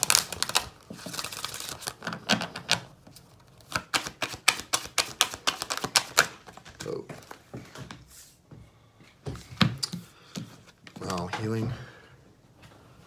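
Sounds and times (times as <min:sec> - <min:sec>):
cards being shuffled: 0:03.5 - 0:07.4.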